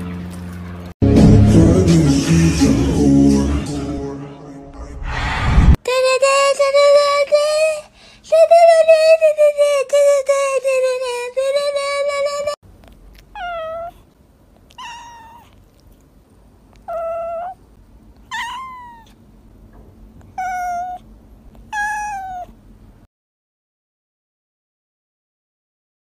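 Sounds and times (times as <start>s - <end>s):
cat meowing: 13.1s - 14.0s, 14.7s - 15.8s, 16.8s - 17.6s, 18.3s - 19.2s, 20.2s - 21.0s, 21.7s - 22.6s.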